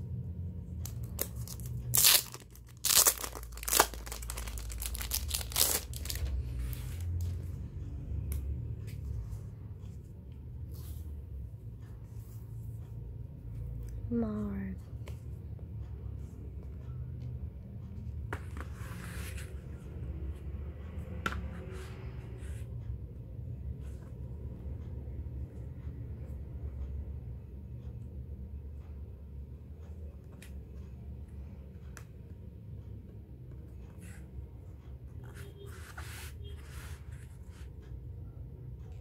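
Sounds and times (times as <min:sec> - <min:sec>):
low steady hum: 0:00.0 - 0:39.0
paper pages rustling: 0:00.9 - 0:07.5.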